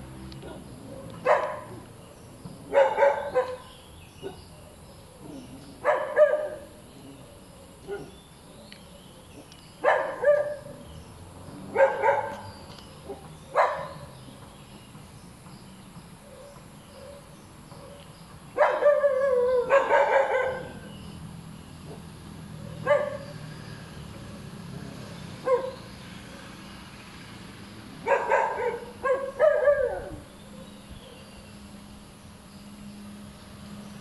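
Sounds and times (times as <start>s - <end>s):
dog barking: 0.4s - 1.8s, 2.7s - 4.5s, 5.2s - 6.8s, 7.8s - 8.2s, 9.8s - 10.8s, 11.7s - 12.5s, 13.1s - 14.1s, 18.6s - 20.9s, 22.7s - 23.3s, 25.4s - 25.9s, 28.0s - 30.2s.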